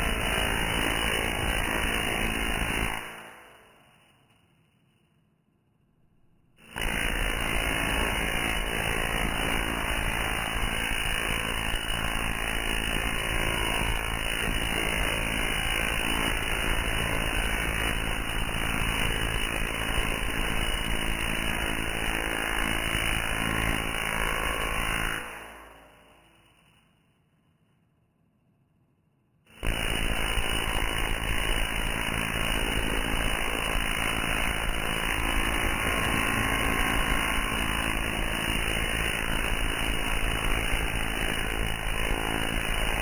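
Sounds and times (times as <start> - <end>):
tesla coil crackling buzz: 29.6 - 43.0.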